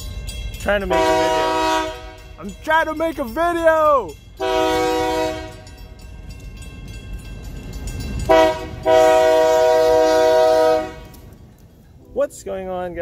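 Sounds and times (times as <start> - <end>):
train low rumble: 0.0 - 13.0
train air horn blasts: 0.9 - 2.3, 4.4 - 5.7, 8.3 - 11.2.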